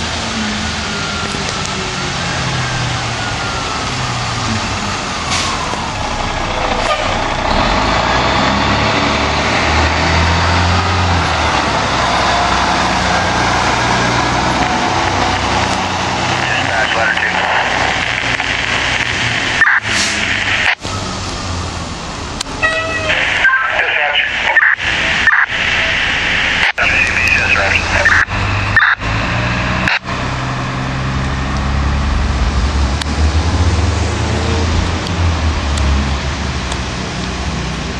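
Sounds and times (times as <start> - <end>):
fire engine pulling away: 0.0 - 37.9
tyres hissing on wet road: 6.5 - 22.5.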